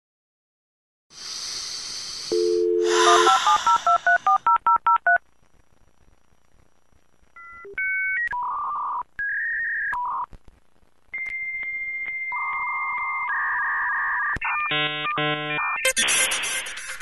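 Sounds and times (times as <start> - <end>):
telephone line hiss: 1.2 - 5.2
two-tone dial tone: 2.3 - 5.2.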